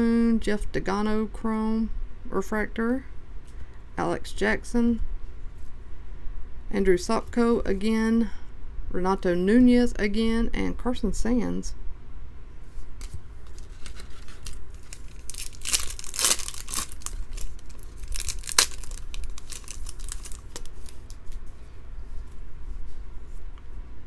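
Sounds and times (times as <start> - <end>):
foil wrapper tearing and crinkling: 13.5 - 21.2.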